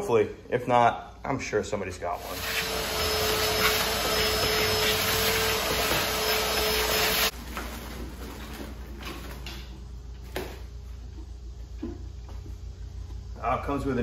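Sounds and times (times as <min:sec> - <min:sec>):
machine rushing and whining: 0:02.2 - 0:07.3.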